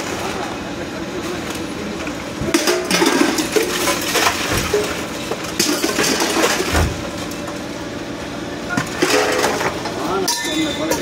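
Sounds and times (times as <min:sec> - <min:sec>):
metal clanking and clattering: 0:02.4 - 0:07.4, 0:08.8 - 0:11.0.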